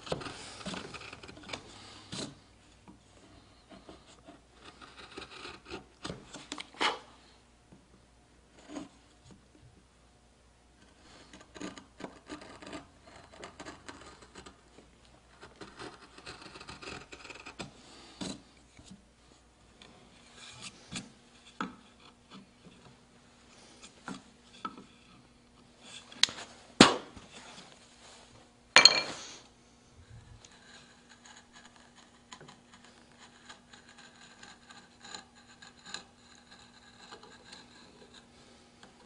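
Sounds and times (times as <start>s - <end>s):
gouge scraping wood: 0.0s - 7.1s, 8.5s - 9.0s, 10.8s - 19.0s, 19.9s - 26.2s, 30.3s - 39.0s.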